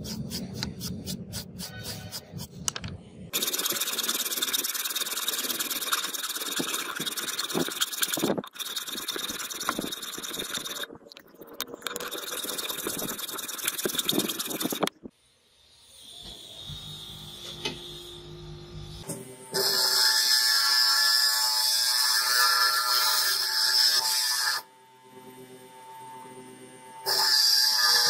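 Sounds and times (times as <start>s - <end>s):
file rasping on steel: 0.0s - 2.6s, 3.4s - 10.8s.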